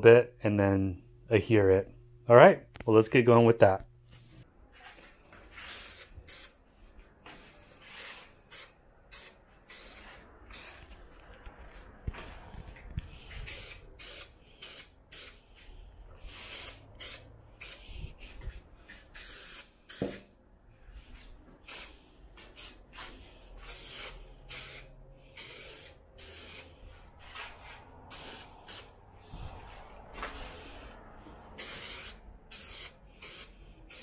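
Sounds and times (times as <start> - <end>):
aerosol spray hissing: 5.6 - 6.6, 7.8 - 10.9, 13.2 - 15.5, 16.3 - 18.4, 19.1 - 20.2, 21.6 - 26.8, 28.1 - 29.6, 31.6 - 34.0.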